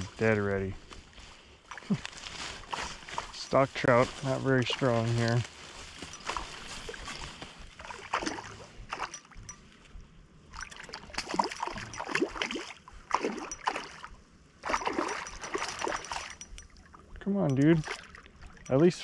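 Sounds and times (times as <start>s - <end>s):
fish splashing at water surface: 7.8s - 9.4s, 10.5s - 16.8s.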